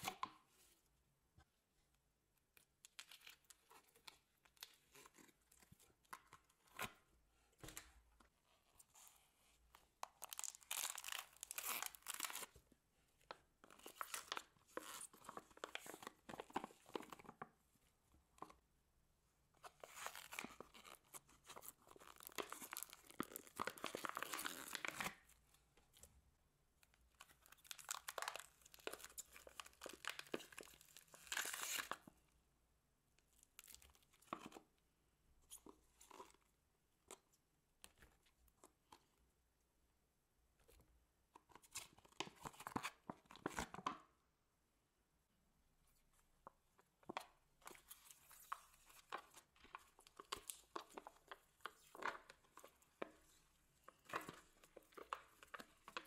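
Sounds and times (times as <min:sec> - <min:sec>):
slime squelching and crinkling: 0:08.8 - 0:12.6, 0:19.6 - 0:26.1, 0:26.9 - 0:32.2, 0:46.3 - 0:56.0.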